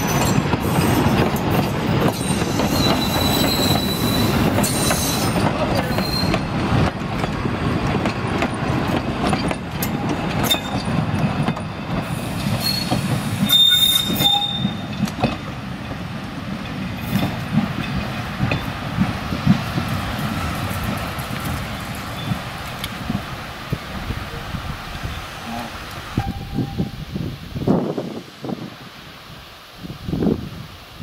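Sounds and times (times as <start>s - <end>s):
train wheels rumbling over rail joints: 0.0s - 28.2s
high wheel squeal: 2.2s - 6.5s, 12.6s - 14.9s.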